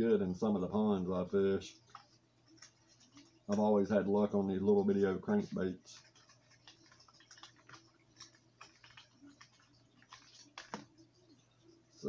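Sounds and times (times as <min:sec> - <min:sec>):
plastic package crinkling: 0:05.8 - 0:11.0.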